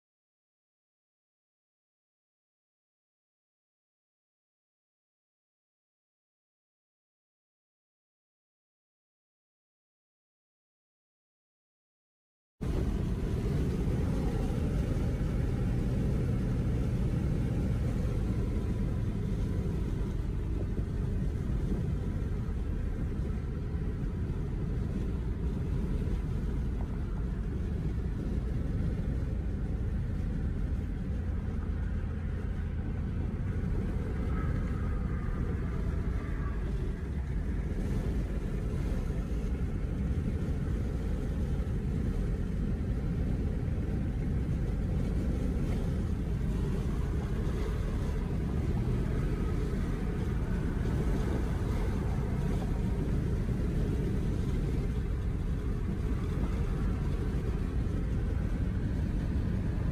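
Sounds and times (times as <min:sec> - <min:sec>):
road and engine rumble in car: 0:12.6 - 0:59.9.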